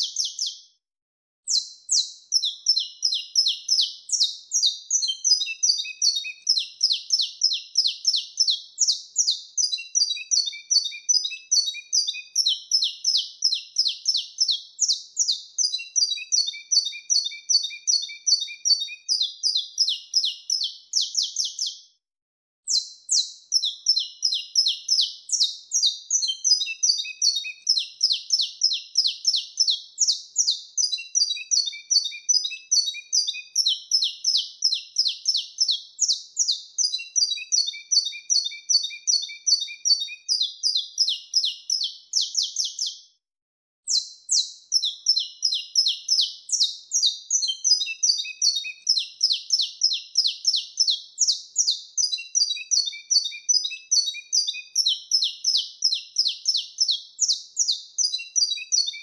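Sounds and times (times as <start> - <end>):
finch singing: 0.0 - 0.6, 1.5 - 21.8, 22.7 - 43.0, 43.9 - 59.0.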